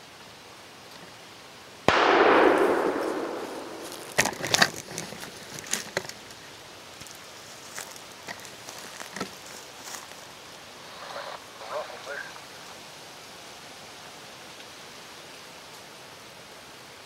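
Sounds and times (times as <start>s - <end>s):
close gunshot: 1.9s - 4.8s
sharp clicks and cracks: 1.9s - 6.4s.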